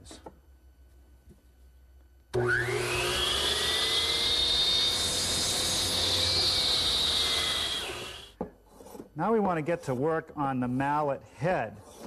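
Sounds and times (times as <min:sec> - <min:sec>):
miter saw cutting wood: 0:02.4 - 0:08.4.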